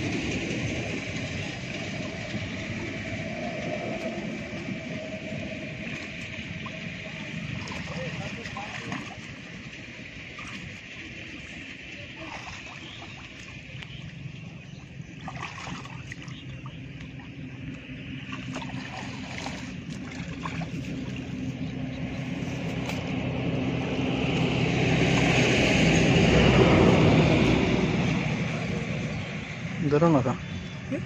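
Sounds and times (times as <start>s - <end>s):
steady low hum: 0.0s - 31.0s
muddy water sloshing and splashing: 0.6s - 29.8s
person wading through water: 3.6s - 29.6s.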